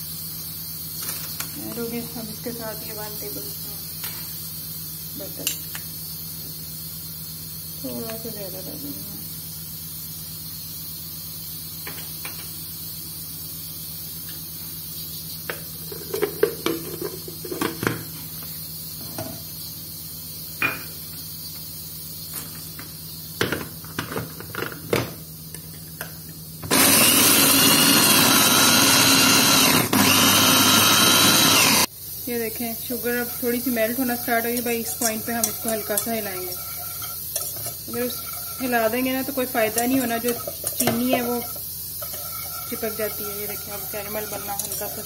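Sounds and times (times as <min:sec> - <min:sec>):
food chopper motor grinding: 0:26.6 - 0:31.9, 0:35.0 - 0:37.1, 0:42.1 - 0:45.0.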